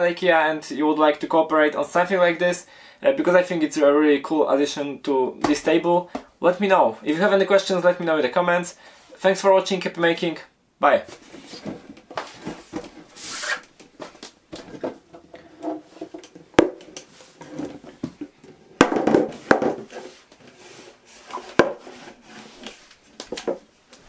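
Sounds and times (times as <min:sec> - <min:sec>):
knocks and rustling: 0:11.1 - 0:13.2, 0:13.8 - 0:20.4.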